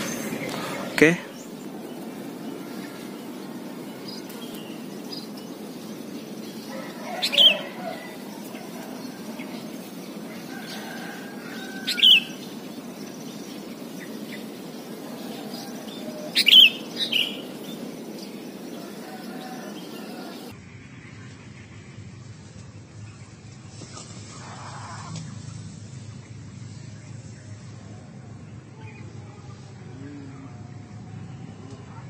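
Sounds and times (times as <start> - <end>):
bulbul bird calling: 0.0 - 20.5
steady low background noise: 0.0 - 32.0.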